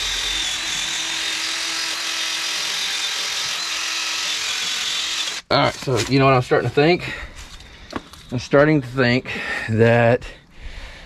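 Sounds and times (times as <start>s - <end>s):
drill wire brush scrubbing steel: 0.0s - 5.5s.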